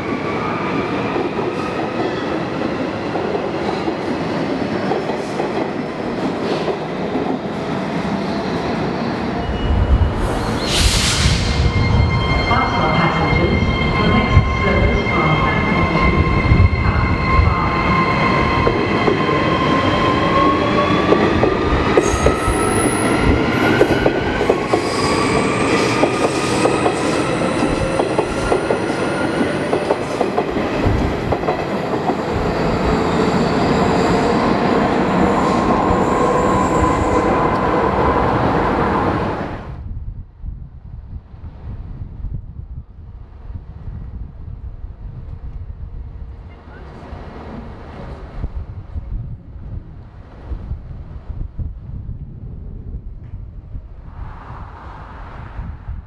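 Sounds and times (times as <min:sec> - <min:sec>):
electric train rumbling past: 0:00.0 - 0:42.3, 0:42.9 - 0:56.0
train high whining tones: 0:08.0 - 0:39.6.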